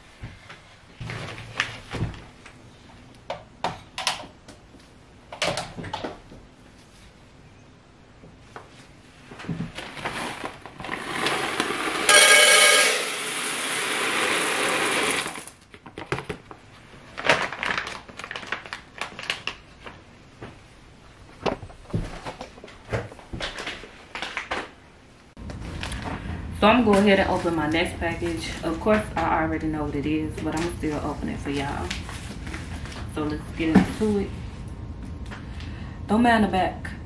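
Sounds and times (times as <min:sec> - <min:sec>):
wax beads pouring into metal pot: 0:10.2 - 0:15.5.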